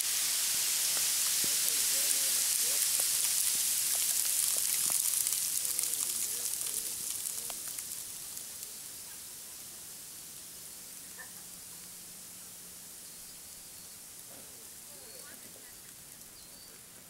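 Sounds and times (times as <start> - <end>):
sand and debris falling: 0.0 - 10.8.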